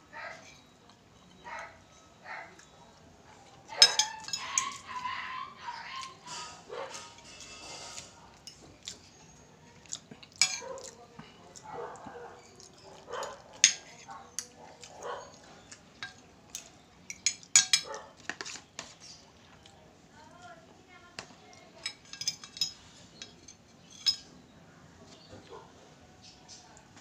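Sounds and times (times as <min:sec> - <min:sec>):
cutlery clinking on a plate: 0:03.7 - 0:05.0, 0:06.1 - 0:09.4, 0:10.1 - 0:11.4, 0:12.1 - 0:19.2, 0:21.2 - 0:24.4.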